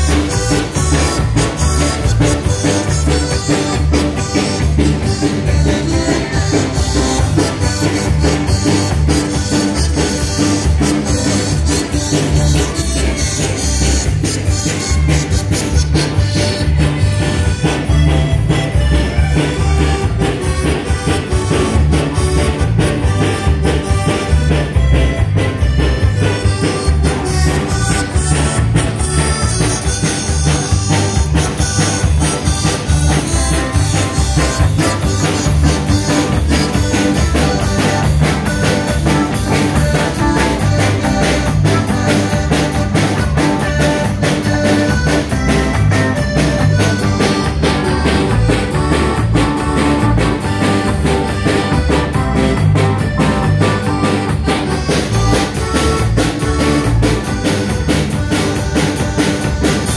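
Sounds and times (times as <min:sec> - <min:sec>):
button accordion: 0:00.0 - 0:59.9
drum kit beat: 0:00.0 - 0:59.9
electric guitar: 0:00.0 - 0:59.9.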